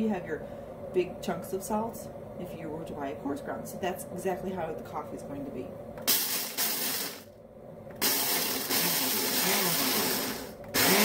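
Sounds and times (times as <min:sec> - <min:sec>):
blender grinding coffee beans: 0:06.0 - 0:07.3, 0:07.9 - 0:11.0.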